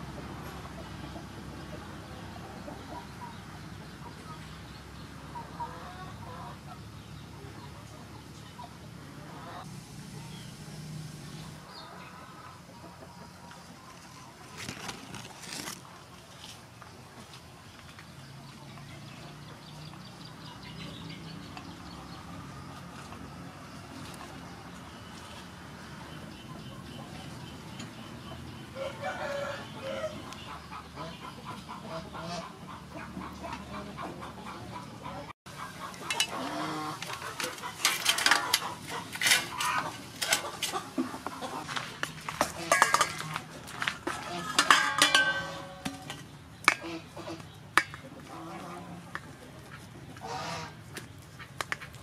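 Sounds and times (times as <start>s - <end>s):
chickens clucking: 0.0s - 52.0s
rooster crowing: 28.7s - 30.2s.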